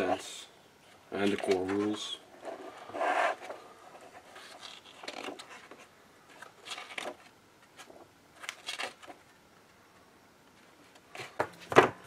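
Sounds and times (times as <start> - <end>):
pages turning: 1.2 - 9.4.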